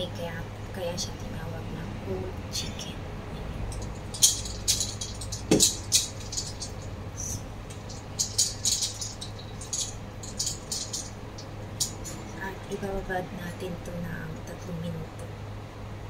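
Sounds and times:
ice cubes clinking in metal bowl: 3.7s - 7.0s, 7.6s - 12.2s.

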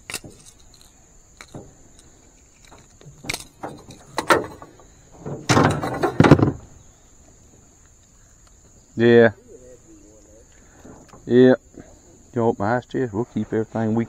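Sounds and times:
high insect drone: 0.0s - 14.0s
knocks and clatter in metal boat: 1.4s - 6.9s.

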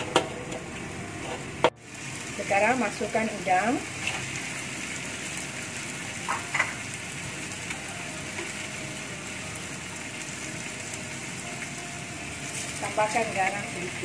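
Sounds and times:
prawns sizzling in a wok: 0.0s - 14.0s.

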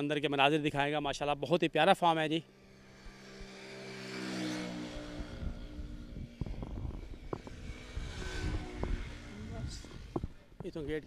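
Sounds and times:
vehicle passing by: 2.5s - 10.4s
low rumbling: 4.7s - 11.0s.

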